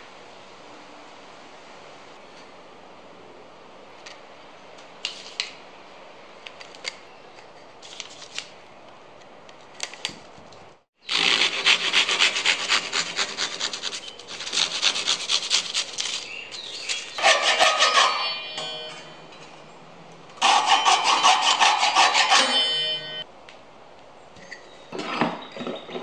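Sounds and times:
handsaw cutting wood: 0:11.1 - 0:16.1, 0:17.2 - 0:18.4, 0:20.4 - 0:22.9.

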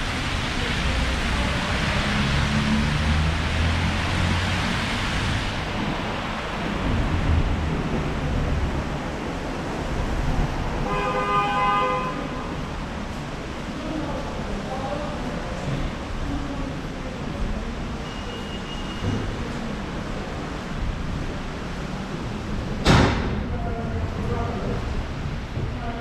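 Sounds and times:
passing vehicles: 0:00.0 - 0:26.0
car horn: 0:10.8 - 0:12.6.

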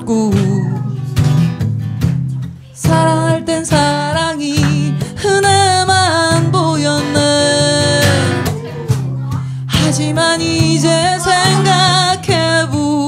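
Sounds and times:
woman singing a slow ballad: 0:00.0 - 0:01.1, 0:02.8 - 0:08.6, 0:09.5 - 0:13.0
acoustic guitar: 0:00.0 - 0:13.0.

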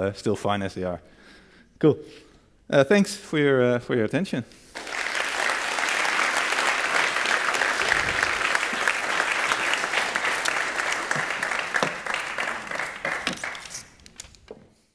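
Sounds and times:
audience applauding: 0:04.8 - 0:14.0.

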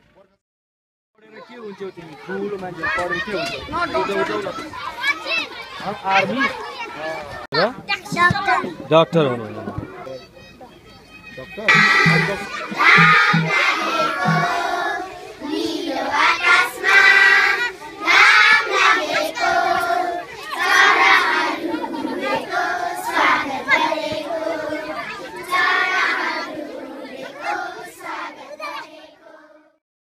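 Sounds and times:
children singing together: 0:11.7 - 0:29.8.

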